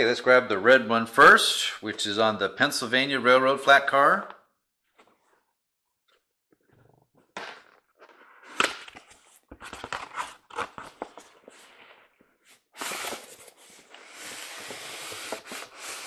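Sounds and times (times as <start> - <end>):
rustling slide of packaging: 8.0 - 16.0.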